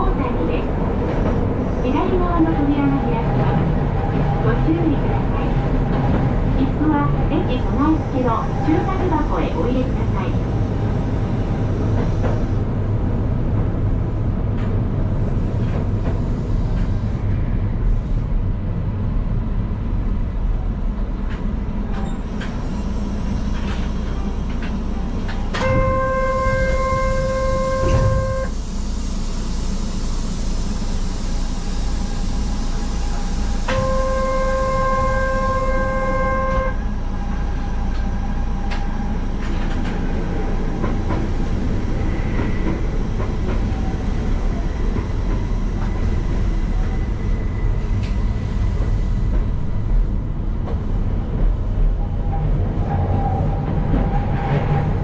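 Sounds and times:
electric train rumble: 0:00.0 - 0:55.0
train horn blasts: 0:25.5 - 0:28.6, 0:33.6 - 0:36.9.

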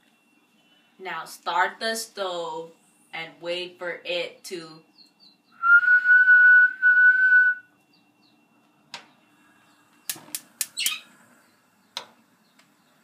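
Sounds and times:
person whistling one note: 0:05.6 - 0:07.7.

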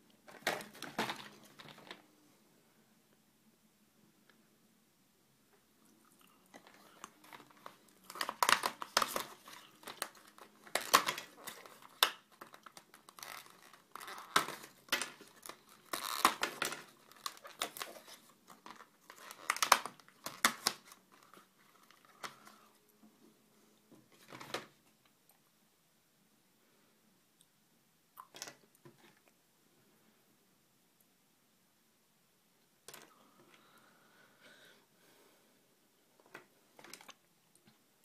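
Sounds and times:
packaging crinkling and tearing: 0:06.5 - 0:22.6.

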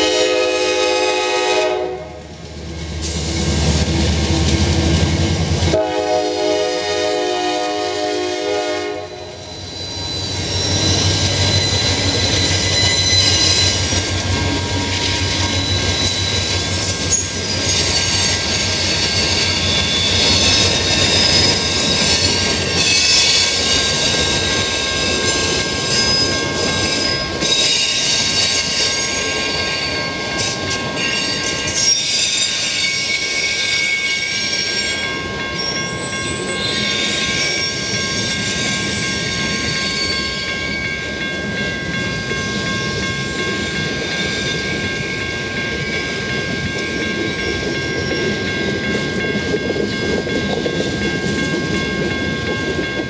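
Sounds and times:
high-pitched wheel squeal: 0:09.2 - 0:14.0, 0:15.3 - 0:24.1.

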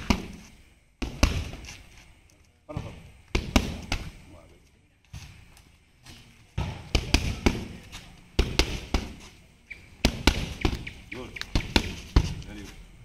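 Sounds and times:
boxing gloves slapping mitts: 0:00.0 - 0:01.9, 0:03.3 - 0:04.2, 0:06.1 - 0:09.4, 0:10.0 - 0:12.6.

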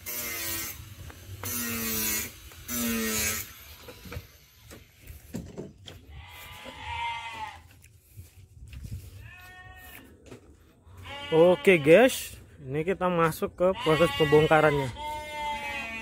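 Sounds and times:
footsteps on dirt: 0:00.9 - 0:03.0, 0:03.6 - 0:11.4
sheep bleating: 0:06.1 - 0:07.7, 0:09.2 - 0:10.1, 0:10.9 - 0:12.3, 0:13.7 - 0:16.0.

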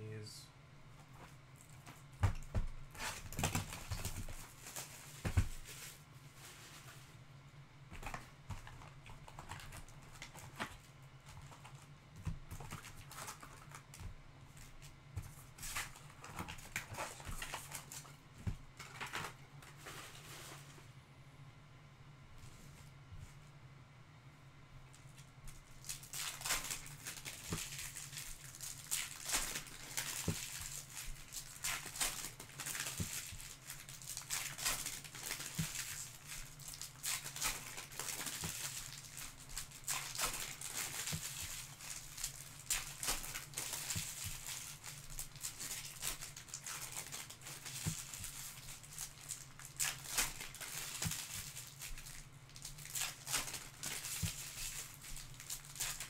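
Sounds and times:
steady low hum: 0:00.0 - 0:34.3
wrappers crinkling: 0:01.1 - 0:07.1, 0:07.9 - 0:18.2, 0:25.0 - 0:56.0.

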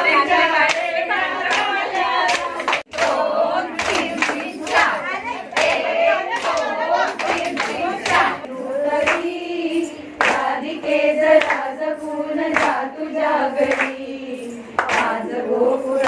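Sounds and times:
women singing together: 0:00.0 - 0:16.0
hand claps: 0:00.6 - 0:09.4, 0:10.2 - 0:11.8, 0:12.4 - 0:12.9, 0:13.6 - 0:14.1, 0:14.7 - 0:15.4.

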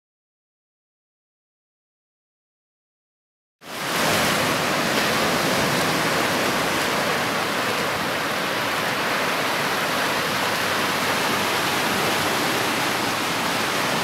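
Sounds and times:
sea surf washing around rock: 0:03.6 - 0:14.0.

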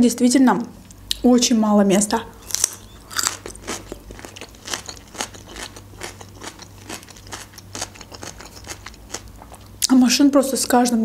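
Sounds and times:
crisp chewing crunches: 0:02.4 - 0:09.7.

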